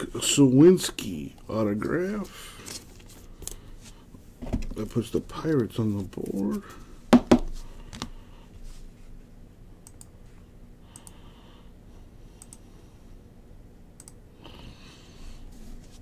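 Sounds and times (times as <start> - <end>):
soft brushing sounds: 8.6 - 9.3, 15.4 - 16.0
computer mouse clicking: 9.8 - 10.1, 10.9 - 11.2, 12.4 - 12.6, 14.0 - 14.2.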